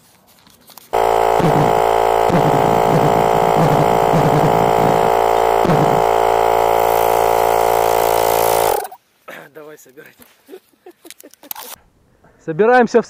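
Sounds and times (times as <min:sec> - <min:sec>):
pulsejet buzzing drone: 0:01.0 - 0:09.0.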